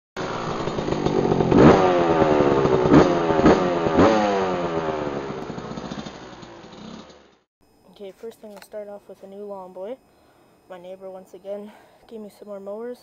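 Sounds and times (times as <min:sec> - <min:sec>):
dirt bike engine revving: 0:00.2 - 0:07.5.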